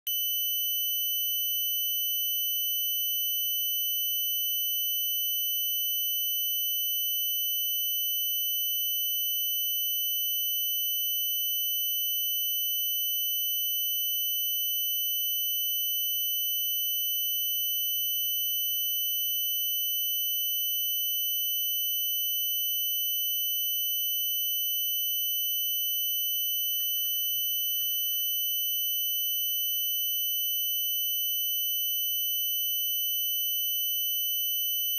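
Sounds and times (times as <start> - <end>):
steady high-pitched tone: 25.6 - 30.9.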